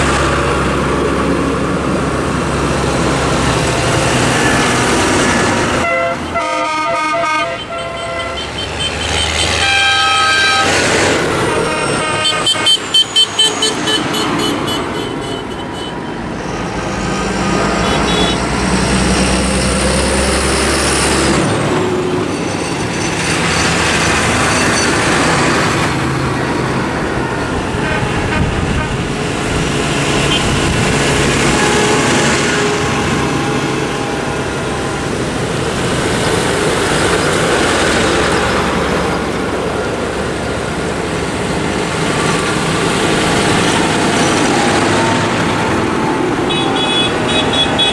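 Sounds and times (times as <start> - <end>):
tractor engines passing: 0.0 - 47.9
tyres on wet road: 0.0 - 47.9
vehicle horns tooting: 5.8 - 10.8, 11.4 - 16.2, 17.7 - 18.5, 27.8 - 29.2, 30.2 - 30.8, 46.4 - 47.9.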